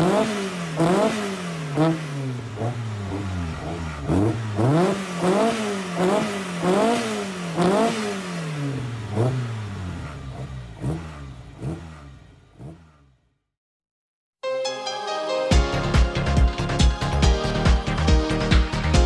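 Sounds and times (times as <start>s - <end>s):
car engine revving: 0.0s - 13.4s.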